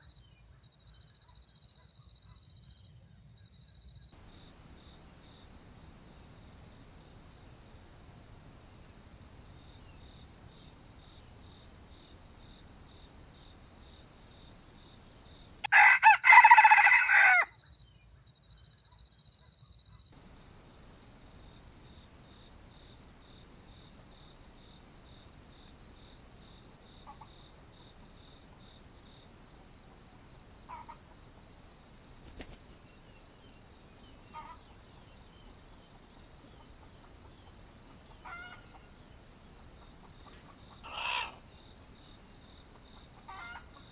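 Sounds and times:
high insect buzz: 4.2s - 17.4s, 20.2s - 43.9s
rooster crowing: 15.6s - 17.5s, 40.8s - 41.4s
soft clucks: 30.7s - 31.4s, 36.5s - 38.9s, 39.7s - 41.4s, 42.7s - 43.9s.

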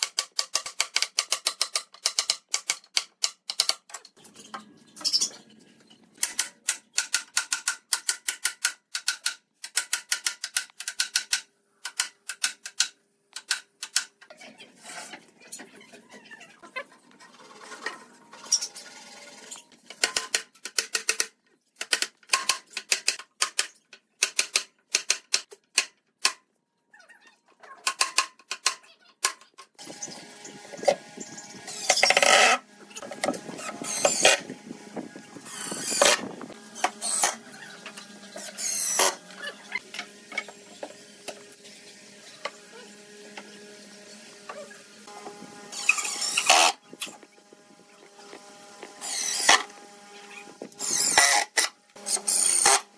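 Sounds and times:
impact driver driving screws: 33.2s - 34.4s, 35.4s - 37.4s, 38.4s - 39.2s, 45.7s - 46.8s, 49.0s - 49.7s, 50.8s - 52.9s.

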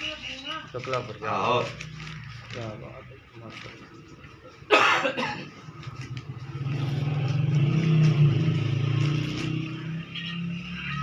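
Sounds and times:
vehicle engine passing by: 5.7s - 11.0s.

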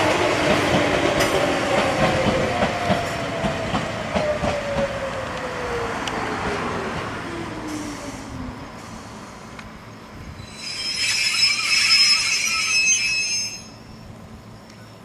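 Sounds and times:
train wheels squealing: 10.4s - 14.1s.

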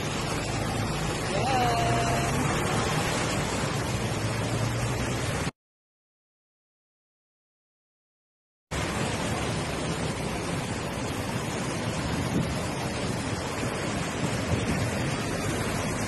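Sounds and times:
wind on microphone: 9.6s - 16.0s.

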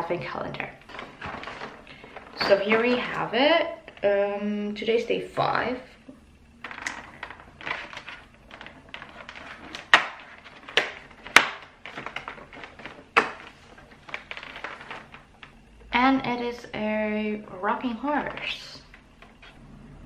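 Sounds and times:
cardboard scratching and crinkling: 0.9s - 3.2s, 6.7s - 15.5s.

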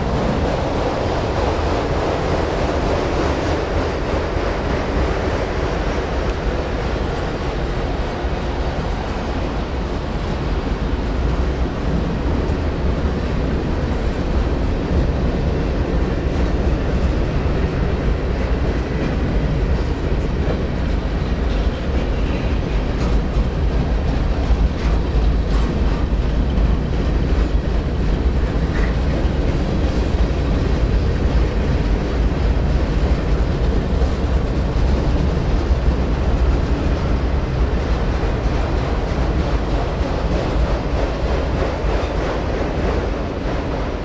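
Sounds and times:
freight train wheels rumbling: 0.0s - 44.0s.

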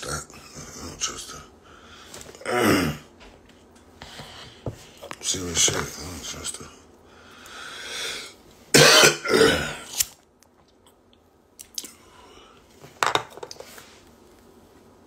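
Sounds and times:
man coughing: 8.7s - 9.9s.

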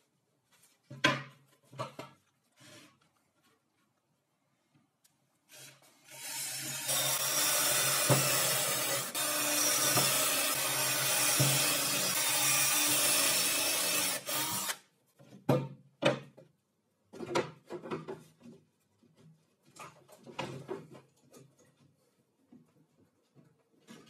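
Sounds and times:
cordless drill boring into metal: 6.0s - 14.8s
knocks and clatters on wooden table: 17.1s - 18.6s.

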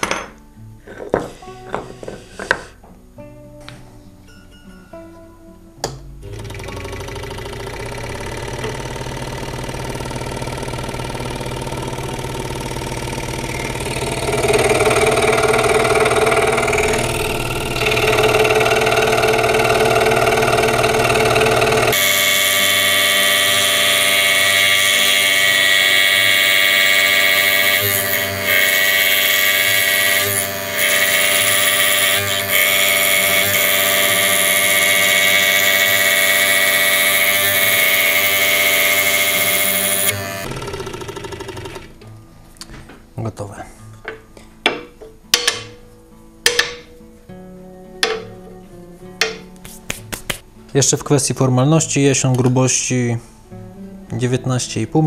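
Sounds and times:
woodworking power tool running: 6.2s - 42.0s.

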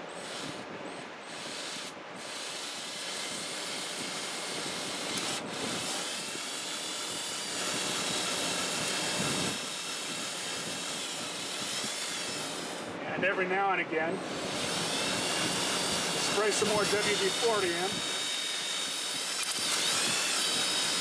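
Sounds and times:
power drill whirring: 0.0s - 12.9s, 14.2s - 21.0s
faint high motor whine: 0.0s - 21.0s
hone grinding metal: 14.2s - 21.0s.

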